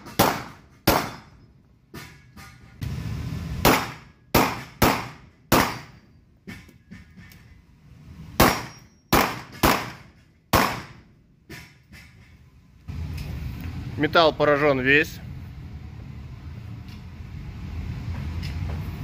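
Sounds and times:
pistol shots echoing: 0.0s - 1.3s, 3.6s - 6.0s, 8.4s - 11.0s.

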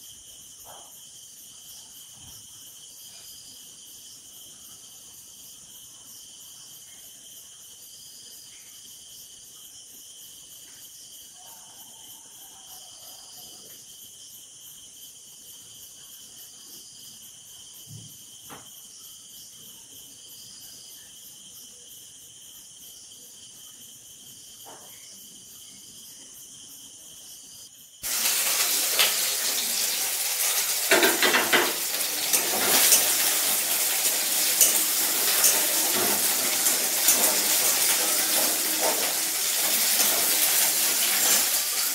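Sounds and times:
crickets chirping: 0.0s - 41.9s
dense hiss: 28.0s - 41.9s
scattered clicks and knocks: 30.9s - 33.2s.

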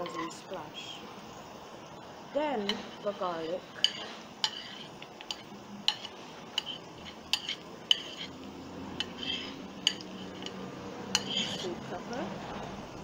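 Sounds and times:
utensil tapping plate and pan: 3.8s - 8.3s, 9.0s - 11.7s.

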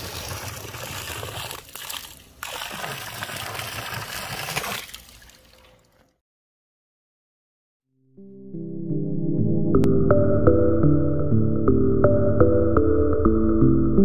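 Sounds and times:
water pouring and splashing on concrete: 0.0s - 6.1s.

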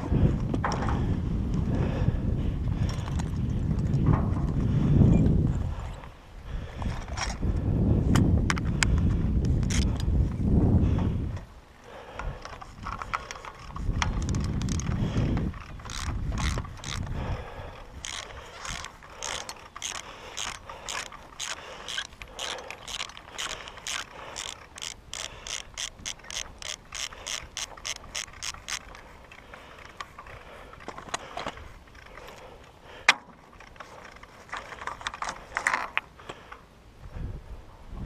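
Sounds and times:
ratchet wrench clicking: 12.3s - 17.2s, 17.9s - 29.1s.

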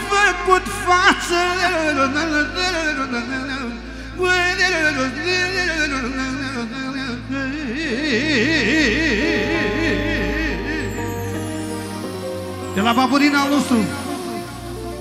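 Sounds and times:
man singing into microphone: 0.0s - 11.6s, 12.6s - 14.7s
fast warbling melody: 8.3s - 15.0s.

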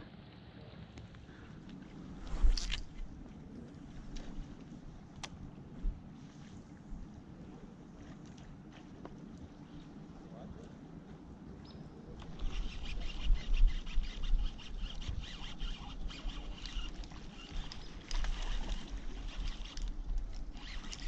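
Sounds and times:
wind rumble on microphone: 0.0s - 21.0s
fishing reel cranking: 12.2s - 21.0s.

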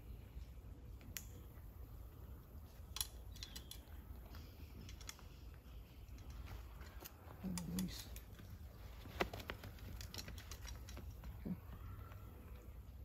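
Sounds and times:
climbing gear clicks and knocks: 2.7s - 12.6s.

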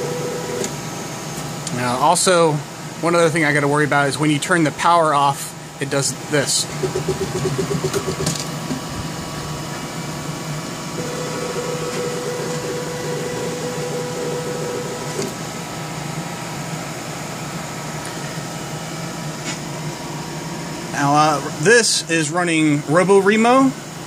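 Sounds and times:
fans humming: 0.0s - 24.0s
stepper motor whining: 11.0s - 15.3s.

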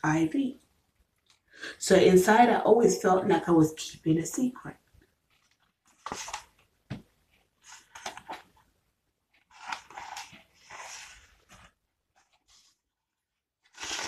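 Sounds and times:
paper rustling and flapping: 5.2s - 8.7s, 9.3s - 12.8s, 13.6s - 14.0s.

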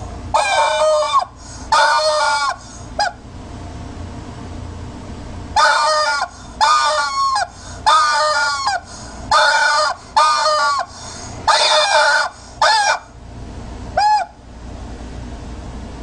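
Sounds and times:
rubber chicken toy squawks: 0.3s - 3.2s, 5.6s - 13.2s, 14.0s - 14.4s.

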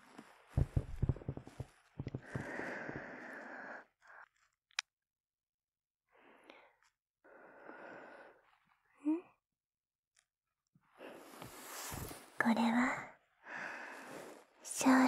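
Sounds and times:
woman breathing: 2.0s - 4.2s, 6.1s - 8.4s, 13.4s - 14.5s.

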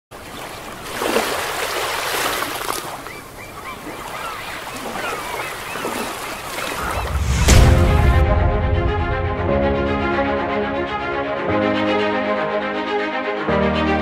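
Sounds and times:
sea waves washing: 0.2s - 13.5s
short bird calls: 2.8s - 7.1s.

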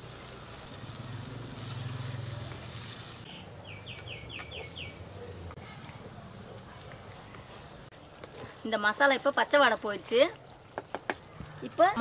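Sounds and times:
liquid sizzling in hot oil: 0.0s - 3.3s.

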